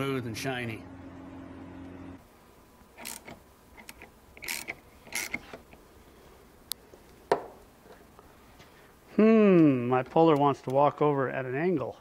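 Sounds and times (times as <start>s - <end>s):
ratchet wrench clicking: 3.0s - 5.6s.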